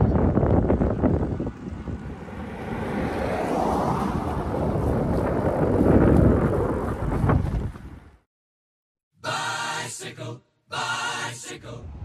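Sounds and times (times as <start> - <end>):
wind buffeting microphone: 0.0 - 8.2.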